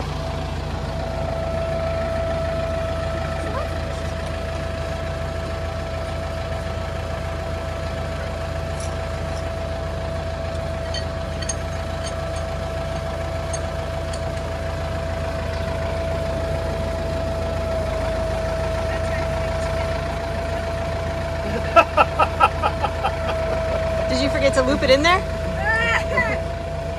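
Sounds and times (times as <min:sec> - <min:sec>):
tractor diesel engine idling: 0:00.0 - 0:26.9
steady whine: 0:21.4 - 0:26.5.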